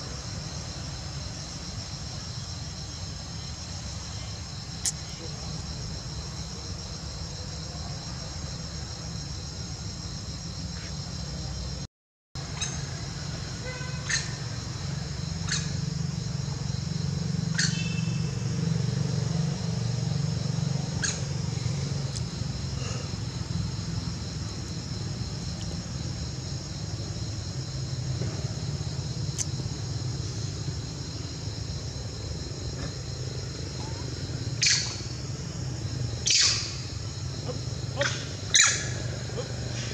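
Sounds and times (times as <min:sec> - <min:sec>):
insects trilling: 0:00.0 - 0:39.9.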